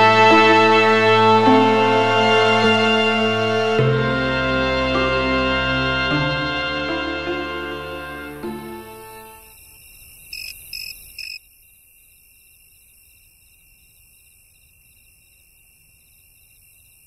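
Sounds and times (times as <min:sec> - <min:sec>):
crickets chirping: 0:08.9 - 0:17.0.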